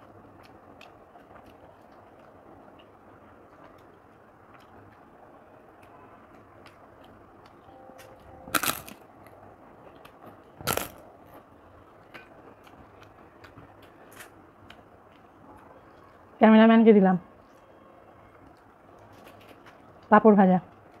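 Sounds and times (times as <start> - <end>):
small eating clicks: 0.0 - 11.0, 12.0 - 16.2.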